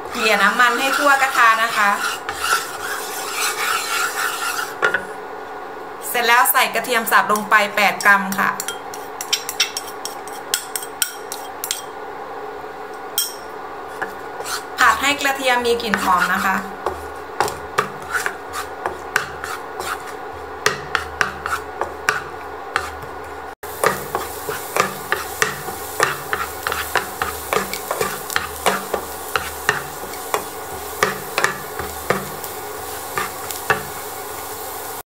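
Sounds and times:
spatula scraping frying pan: 0:00.0 - 0:05.1, 0:13.9 - 0:35.0
garlic frying in oil hiss: 0:23.6 - 0:35.0.

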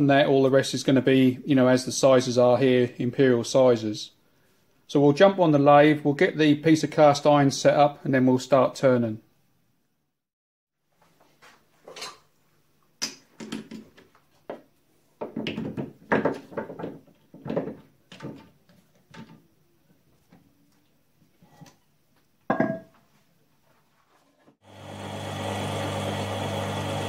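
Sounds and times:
metal lathe humming: 0:24.6 - 0:27.0.

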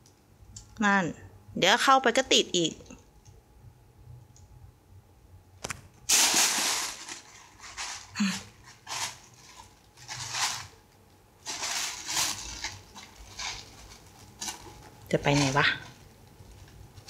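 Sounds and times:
plastic bag crinkling and rustling: 0:05.6 - 0:17.0.

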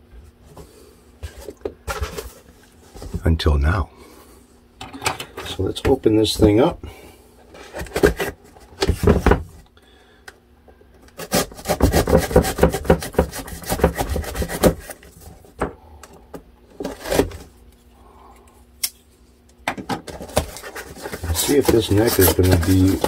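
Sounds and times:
cardboard scraping and rubbing: 0:11.2 - 0:15.2, 0:20.1 - 0:23.0.

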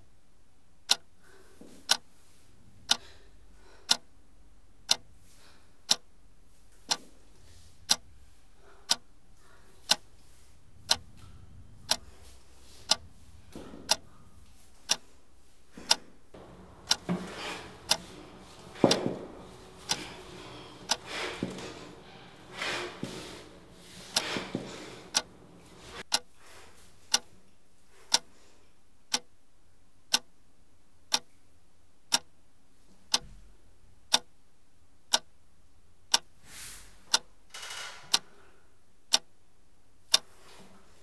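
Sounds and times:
clock ticking: 0:00.9 - 0:01.1, 0:02.9 - 0:03.1, 0:03.9 - 0:04.1, 0:04.8 - 0:05.1, 0:05.9 - 0:06.1, 0:08.9 - 0:09.1, 0:09.9 - 0:10.1, 0:10.8 - 0:12.1, 0:12.8 - 0:13.0, 0:13.8 - 0:14.1, 0:15.9 - 0:26.2
heavy thuds: 0:16.4 - 0:26.0.

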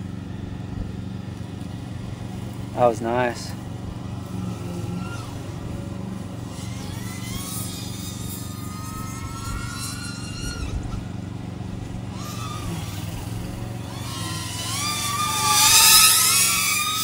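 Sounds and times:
drone whining in flight: 0:00.0 - 0:17.0.

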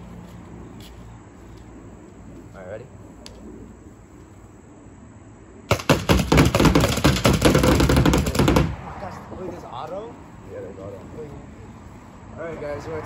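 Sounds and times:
paintball marker rapid firing: 0:05.7 - 0:08.8.

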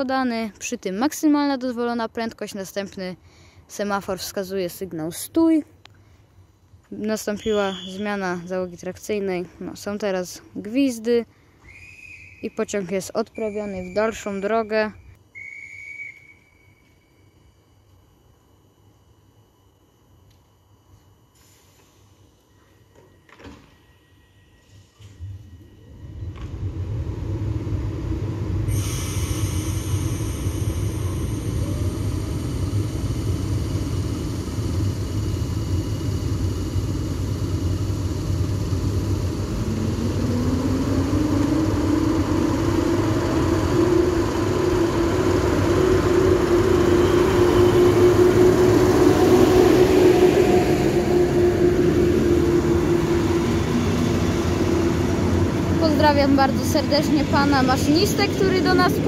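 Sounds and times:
train rumble: 0:25.0 - 0:59.0
electric motor whine: 0:26.1 - 0:59.0.

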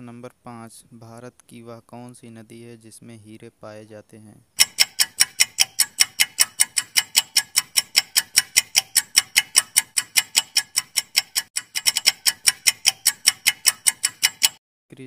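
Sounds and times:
countdown timer ticking: 0:04.6 - 0:14.6.

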